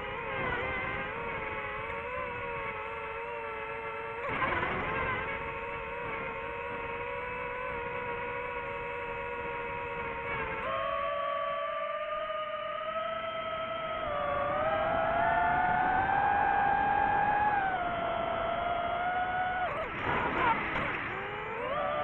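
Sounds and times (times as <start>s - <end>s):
drone propellers whining: 0.0s - 22.0s.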